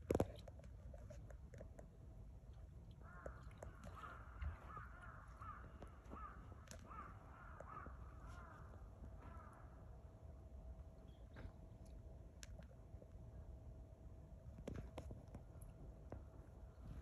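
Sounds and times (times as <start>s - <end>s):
crow cawing: 3.0s - 9.8s.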